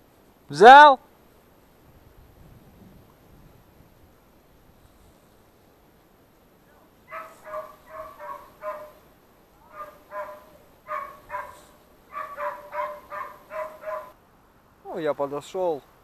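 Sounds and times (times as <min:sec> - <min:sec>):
dog barking in high barks: 0:07.1 - 0:09.0, 0:09.6 - 0:14.2.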